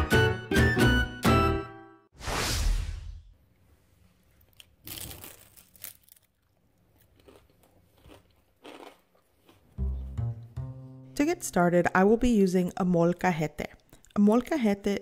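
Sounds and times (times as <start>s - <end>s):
tortilla chip crunching: 4.4s - 9.8s.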